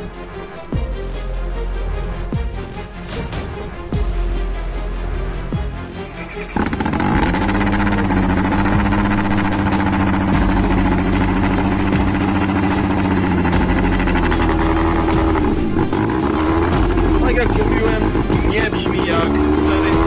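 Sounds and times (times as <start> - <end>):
car engine idling at exhaust: 6.0 - 20.0.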